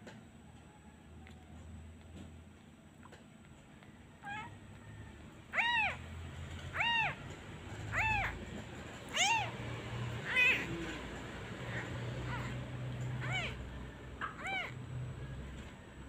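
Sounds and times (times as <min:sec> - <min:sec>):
kitten mewing: 0:04.2 - 0:04.6, 0:05.5 - 0:06.1, 0:06.7 - 0:08.5, 0:09.1 - 0:14.8.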